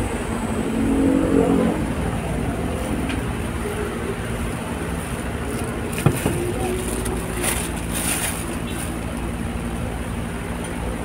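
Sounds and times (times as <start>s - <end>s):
pitched drone: 0.0s - 7.7s
road traffic rumble: 0.0s - 11.0s.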